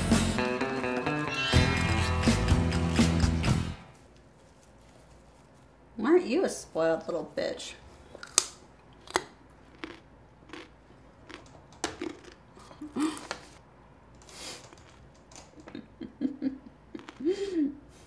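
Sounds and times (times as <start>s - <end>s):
person chewing raw carrot: 8.1s - 13.6s, 14.6s - 15.2s, 16.8s - 17.6s.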